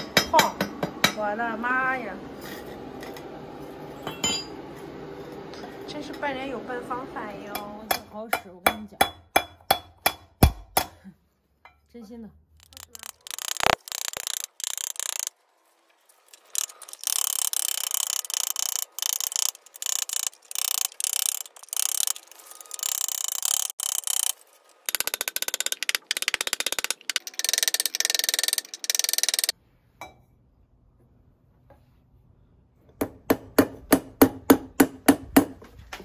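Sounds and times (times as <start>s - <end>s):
hammer striking copper pot: 4.0s - 4.6s, 7.5s - 11.0s.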